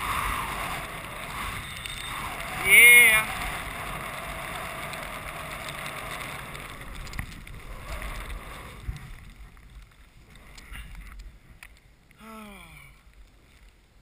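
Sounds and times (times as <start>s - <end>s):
skis hissing through snow: 0.0s - 9.3s
faint clicks and knocks: 5.6s - 12.2s
person calling out: 12.2s - 12.9s.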